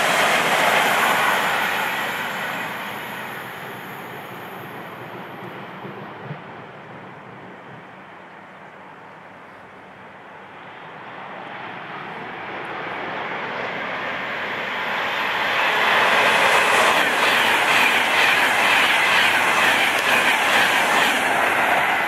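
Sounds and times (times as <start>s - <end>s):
electric train passing at speed: 0.0s - 22.0s
train wheels clattering: 15.6s - 22.0s.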